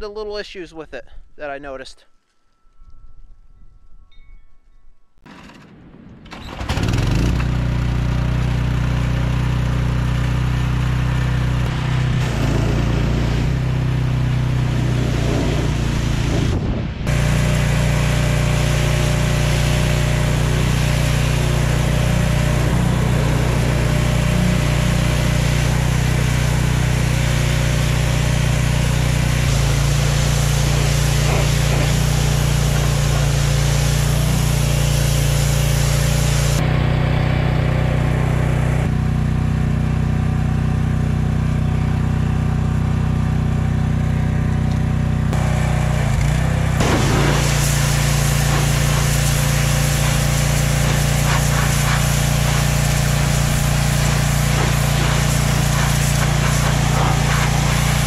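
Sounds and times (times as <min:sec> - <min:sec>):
pressure washer engine running: 0:06.5 - 0:58.0
water jet spraying on metal: 0:17.1 - 0:36.6, 0:46.7 - 0:58.0.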